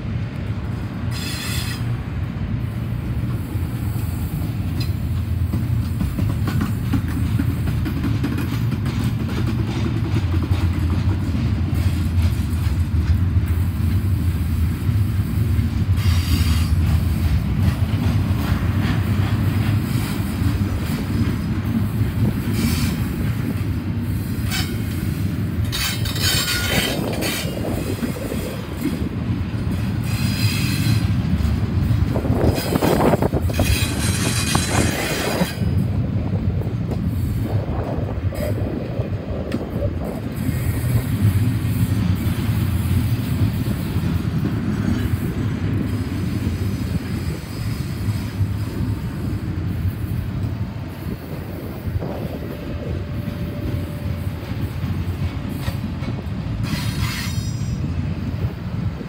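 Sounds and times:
train wheels rumbling on rail: 0:00.0 - 0:59.0
high wheel squeal: 0:01.1 - 0:01.9.

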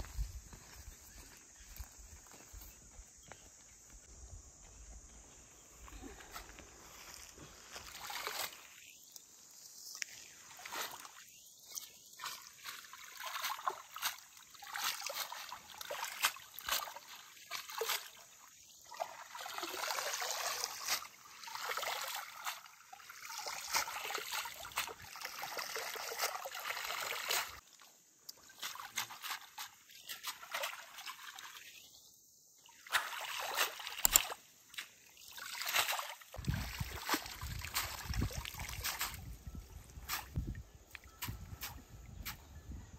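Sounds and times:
stream trickling: 0:06.6 - 0:42.5
greens sloshing and splashing: 0:07.6 - 0:09.0, 0:10.0 - 0:27.7, 0:28.4 - 0:31.8, 0:32.6 - 0:40.4.

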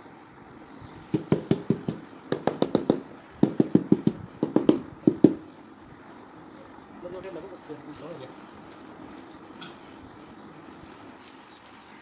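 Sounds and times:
rubber mallet tapping tile: 0:01.1 - 0:05.4.

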